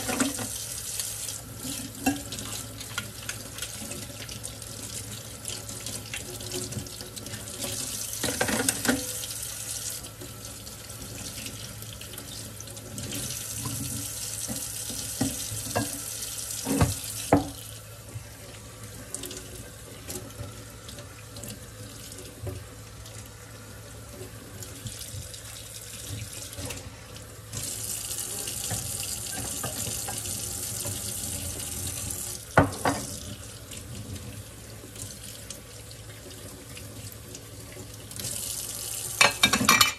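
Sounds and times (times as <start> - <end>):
dishes clinking against sink: 0.0 - 0.6, 1.7 - 2.6, 8.2 - 9.2, 15.2 - 17.6, 28.4 - 31.0, 32.6 - 33.1, 39.2 - 39.9
faucet running into sink: 0.0 - 17.8, 18.4 - 39.9
water splashing off dishes: 39.2 - 39.9.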